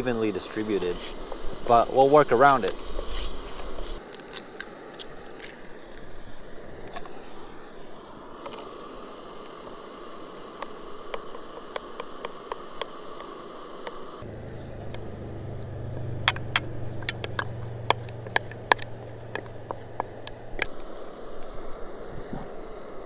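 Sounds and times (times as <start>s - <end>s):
camp stove burner noise: 0.0s - 23.0s
spatula tapping a bowl: 16.3s - 20.4s.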